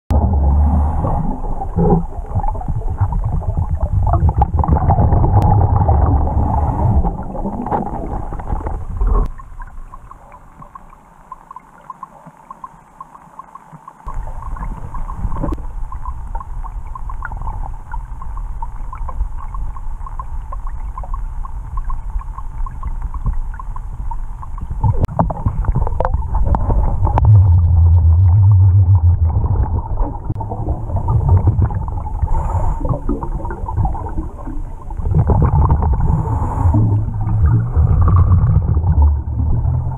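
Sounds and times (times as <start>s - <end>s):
bubbling: 0.1s - 39.9s
underwater regulator breathing: 32.2s - 33.3s, 35.9s - 38.6s.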